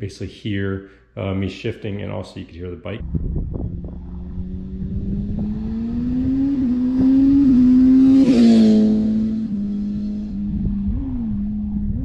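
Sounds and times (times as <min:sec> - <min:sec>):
motorcycle engine accelerating past: 0:03.0 - 0:12.0.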